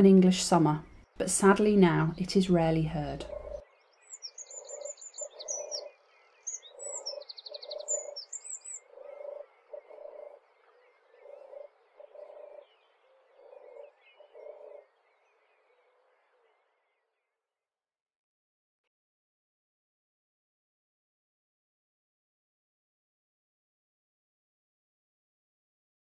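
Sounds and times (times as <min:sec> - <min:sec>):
dove purring song: 0:00.0 - 0:17.2
bird chirps: 0:03.1 - 0:17.2.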